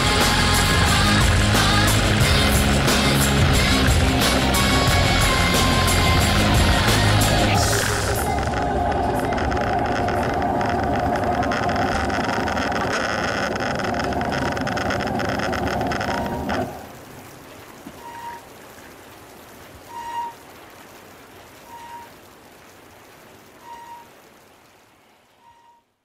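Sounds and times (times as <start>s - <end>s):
motorcycle engine running: 0.0s - 9.2s.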